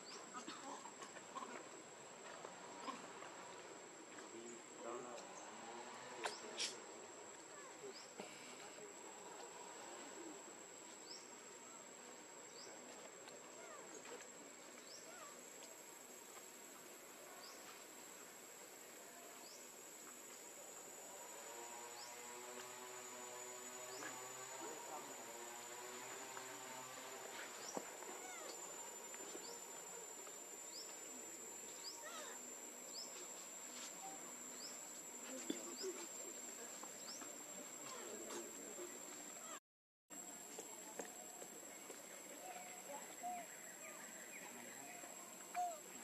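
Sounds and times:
high-pitched insect drone: 20.3 - 37.1.

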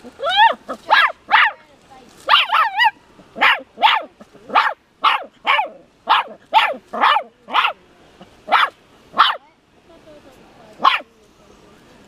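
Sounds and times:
small dog yapping: 0.1 - 1.6, 2.2 - 7.8, 8.5 - 9.4, 10.8 - 11.1.

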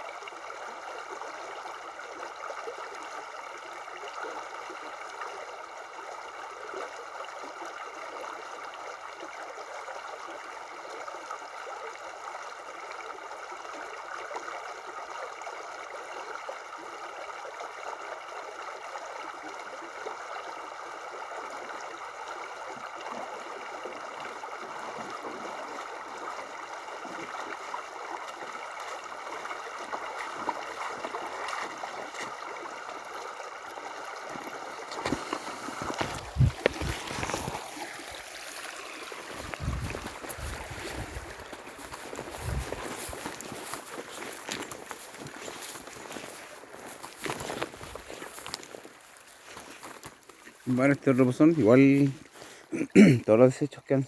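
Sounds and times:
water rushing over rocks: 20.6 - 53.6
splashes of wading: 22.6 - 53.3.

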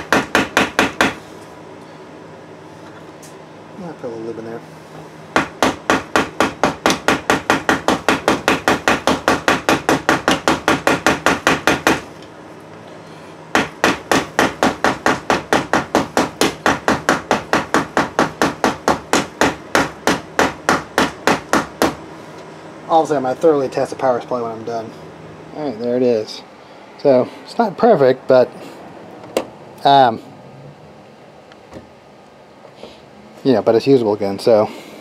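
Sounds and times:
hammer tapping rapidly on metal: 5.4 - 12.0.

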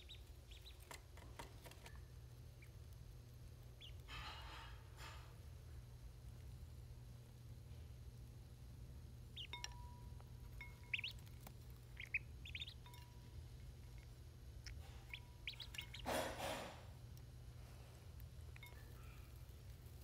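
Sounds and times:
ducklings peeping: 0.0 - 4.3, 9.2 - 16.8.

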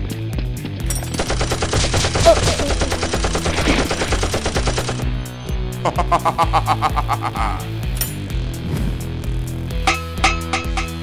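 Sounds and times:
machine-gun sound effect: 1.1 - 5.0
background music with steady beat: 3.9 - 11.0.

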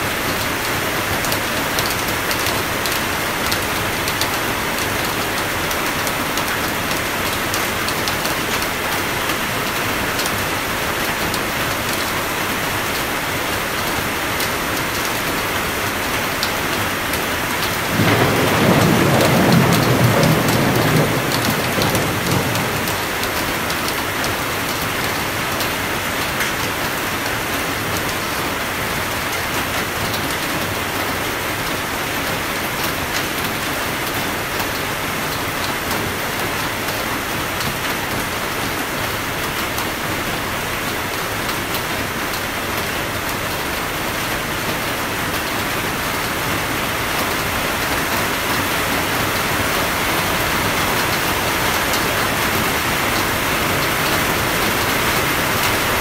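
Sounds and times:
steady rainfall hiss: 0.0 - 56.0
raindrops ticking: 1.2 - 12.2, 16.3 - 27.2.

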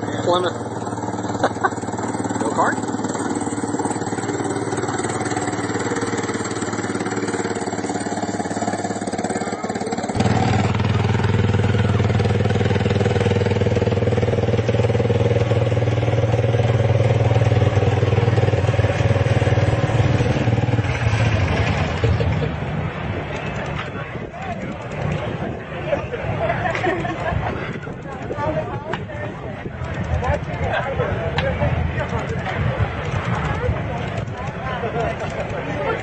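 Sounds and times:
small engine running: 0.0 - 22.4.

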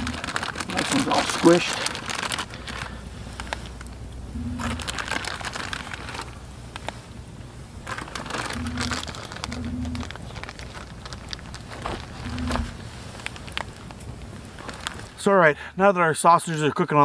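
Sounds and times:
short low hums: 0.0 - 0.4, 4.1 - 6.4, 8.4 - 10.5, 12.0 - 12.9
crinkling handling noise: 0.0 - 15.3.

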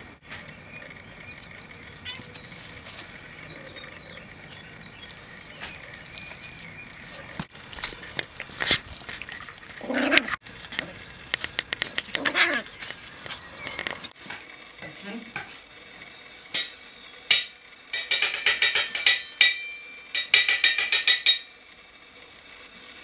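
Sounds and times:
sharp clicks and scuffles: 4.5 - 14.4.

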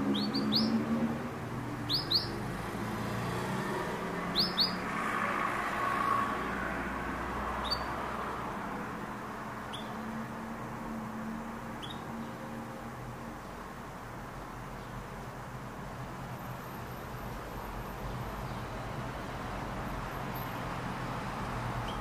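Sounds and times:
canary chirping: 0.0 - 5.2, 7.5 - 8.1, 9.6 - 10.2, 11.6 - 12.4, 21.8 - 22.0.

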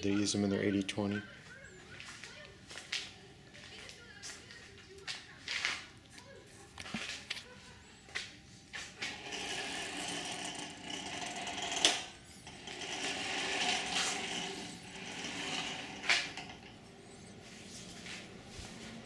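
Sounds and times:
carriage rolling with gritty whirr: 8.8 - 18.4.

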